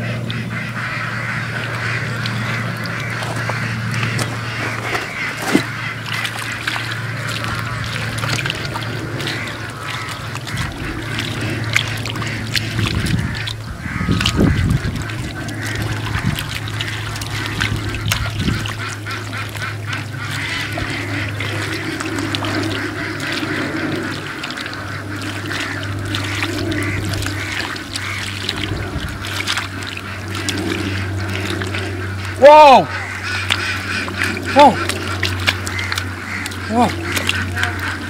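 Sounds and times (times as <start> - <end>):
ducks quacking: 0.0 - 38.0
steady low hum: 0.0 - 38.0
hands squelching in mud: 0.1 - 38.0.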